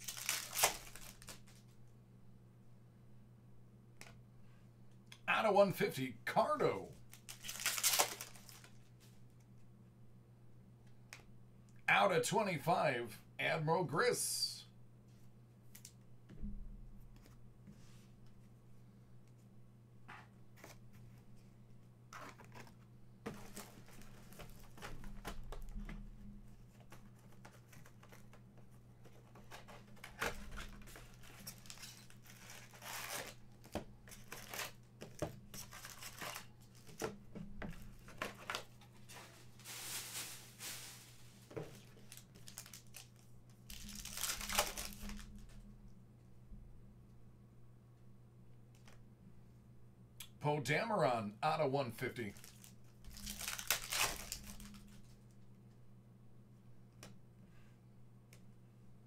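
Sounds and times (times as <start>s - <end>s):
card packs tearing: 0.0s - 1.6s, 7.1s - 8.8s, 29.6s - 34.8s, 35.6s - 36.5s, 41.9s - 45.2s, 52.4s - 54.8s
cards clicking and rustling: 0.0s - 1.6s, 7.1s - 8.8s, 29.0s - 37.1s
wrappers crinkling: 0.0s - 1.6s, 7.1s - 8.9s, 30.1s - 34.8s, 35.6s - 36.5s, 39.5s - 45.3s, 52.3s - 54.9s.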